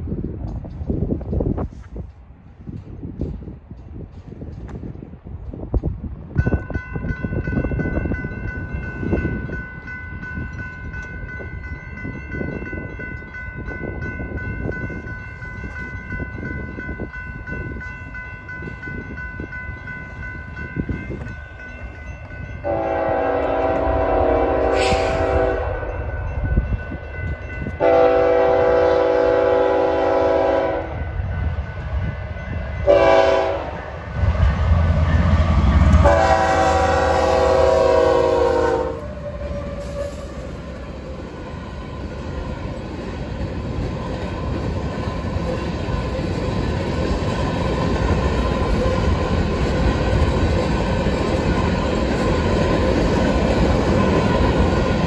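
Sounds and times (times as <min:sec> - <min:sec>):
railroad crossing bell ringing: 0:05.8 - 0:55.0
diesel locomotive rumble: 0:13.6 - 0:55.0
locomotive air horn blasts: 0:22.6 - 0:25.9, 0:27.8 - 0:31.0, 0:32.8 - 0:33.8, 0:35.9 - 0:40.5.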